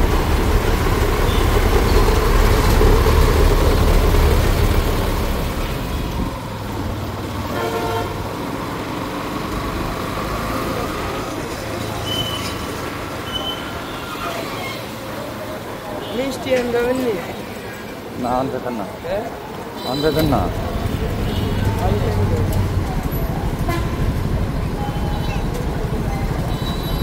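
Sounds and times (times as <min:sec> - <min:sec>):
motorcycle rumble in traffic: 0:00.0 - 0:15.8, 0:19.8 - 0:27.0
vehicle horn toot: 0:07.5 - 0:08.2.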